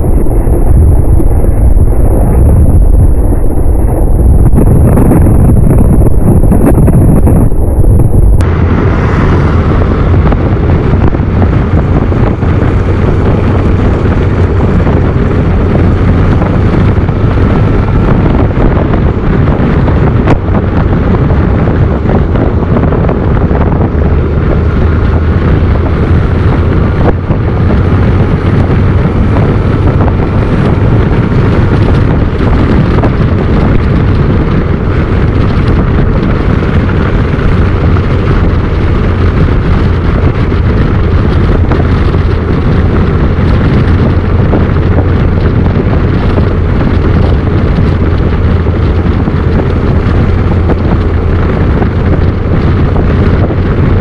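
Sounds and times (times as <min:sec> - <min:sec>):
motorcycle engine drone: 0:00.0 - 0:54.0
wind buffeting microphone: 0:00.0 - 0:54.0.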